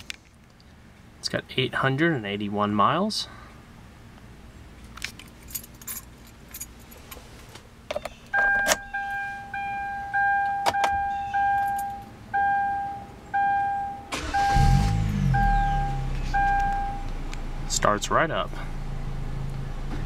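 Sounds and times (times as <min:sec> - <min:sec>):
keys jangling in ignition: 0:05.0 - 0:07.1, 0:11.6 - 0:12.1
door-open warning chime: 0:08.4 - 0:17.0
car engine cranking and starting: 0:14.1 - 0:20.0.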